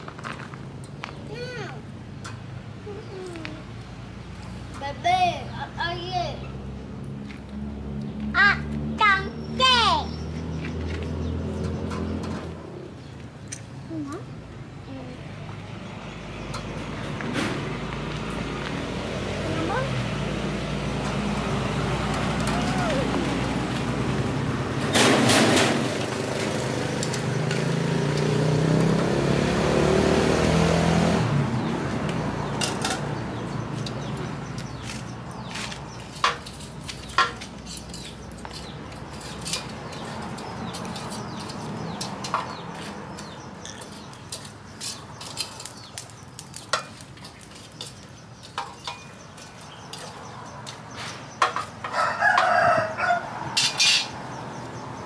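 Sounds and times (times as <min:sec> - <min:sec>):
rooster crowing: 0:51.8 - 0:53.5.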